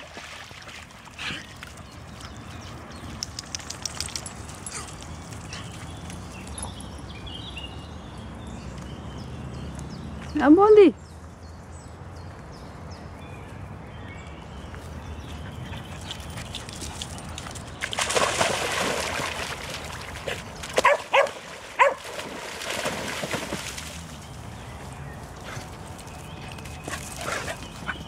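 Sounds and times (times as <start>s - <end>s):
dogs splashing through water: 0.0s - 7.3s, 15.4s - 28.0s
dog barking: 20.8s - 22.0s.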